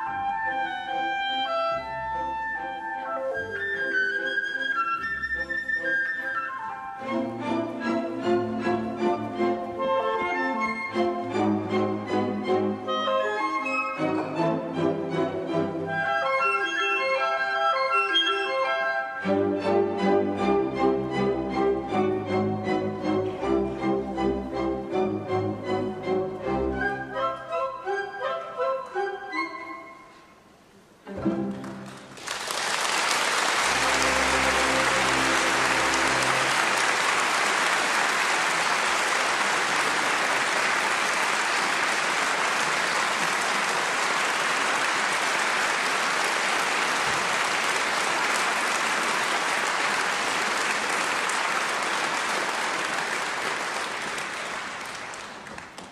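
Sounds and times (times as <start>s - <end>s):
orchestra playing: 0.0s - 55.1s
audience applauding: 31.4s - 55.9s.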